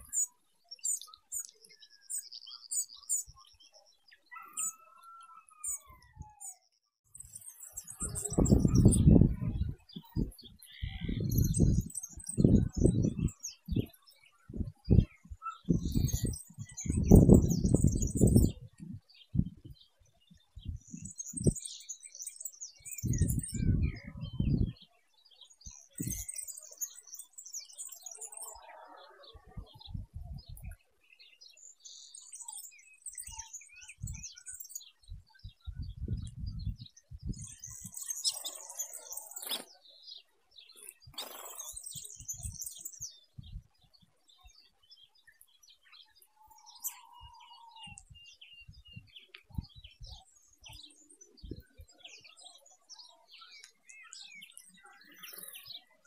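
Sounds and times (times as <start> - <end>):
finches chirping: 0.0 - 19.8, 20.6 - 24.8, 25.5 - 30.8, 32.1 - 56.0.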